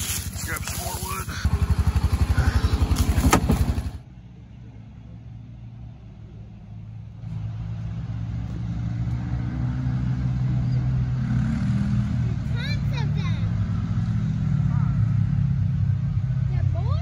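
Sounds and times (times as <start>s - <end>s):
steady low engine hum: 0.0s - 9.4s
engine running with low pulse: 0.0s - 11.1s.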